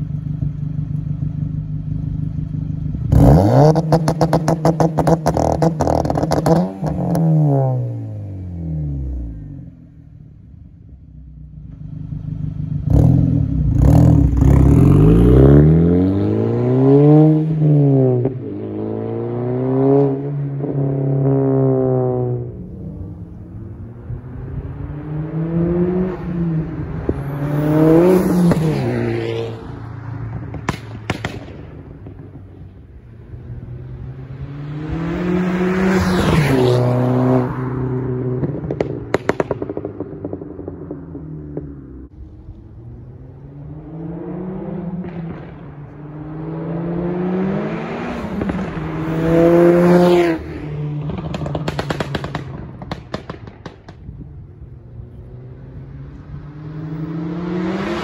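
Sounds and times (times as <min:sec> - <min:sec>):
car engine revving: 0:00.1 - 0:10.4, 0:11.4 - 0:58.0
exhaust pops and crackles: 0:30.3 - 0:32.9, 0:38.3 - 0:42.6, 0:45.0 - 0:46.0, 0:48.3 - 0:49.2, 0:51.0 - 0:55.0.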